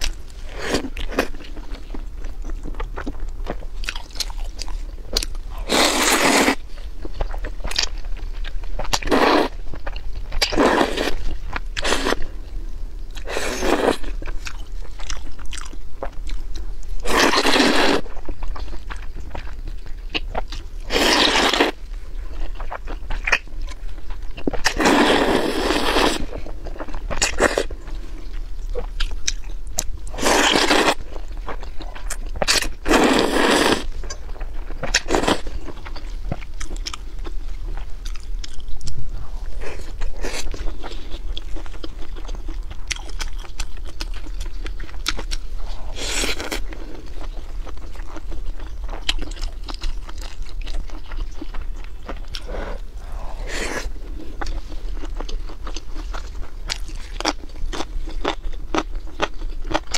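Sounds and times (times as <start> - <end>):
loud noodle slurps: 5.7 - 6.6, 24.8 - 26.3, 32.8 - 33.9
chewing and wet mouth clicks: 14.2 - 16.6, 34.0 - 39.0, 41.3 - 45.5, 46.2 - 53.2.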